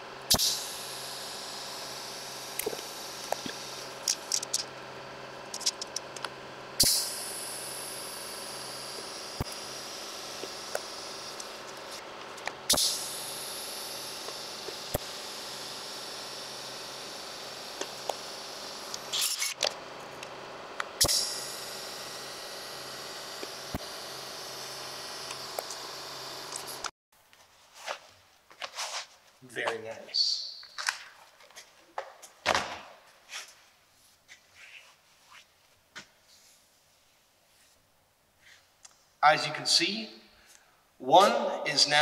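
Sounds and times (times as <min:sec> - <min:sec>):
welder humming and hissing: 0:00.0 - 0:26.9.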